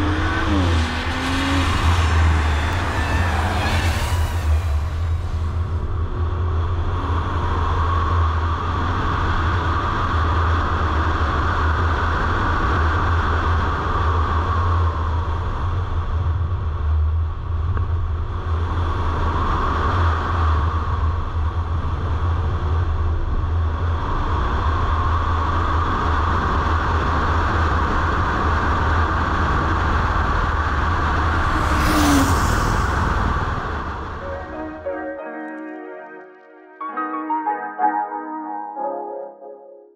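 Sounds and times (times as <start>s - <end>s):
car engine drone: 0.0s - 35.3s.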